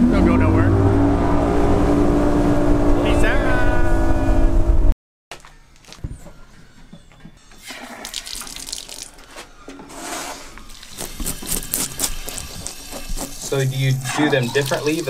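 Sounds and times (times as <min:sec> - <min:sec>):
tap water running into sink: 0:10.8 - 0:15.0.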